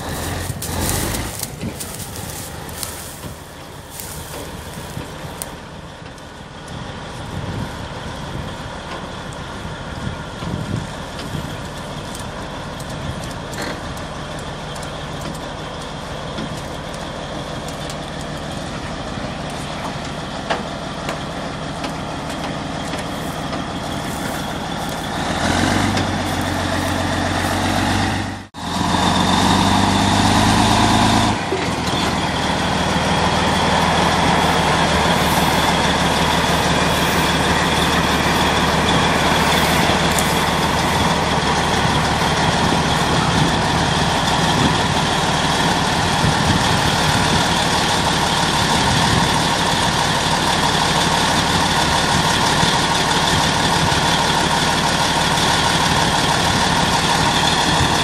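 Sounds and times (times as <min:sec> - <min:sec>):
tracked vehicle diesel engine: 0:00.0 - 0:58.0.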